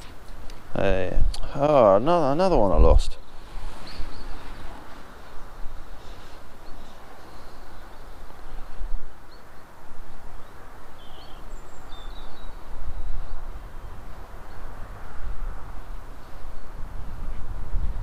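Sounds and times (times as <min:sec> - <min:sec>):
wind buffeting microphone: 0:00.0 - 0:18.0
bird chirps: 0:03.8 - 0:04.6, 0:10.4 - 0:14.6.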